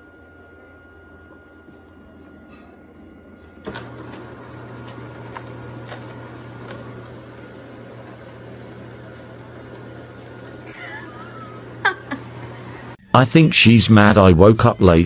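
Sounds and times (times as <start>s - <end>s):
household appliance humming: 0.0s - 13.0s.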